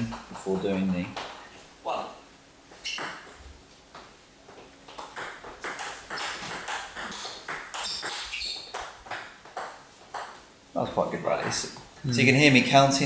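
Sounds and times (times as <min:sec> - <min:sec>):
table tennis ball clicking: 0:05.0 - 0:10.4.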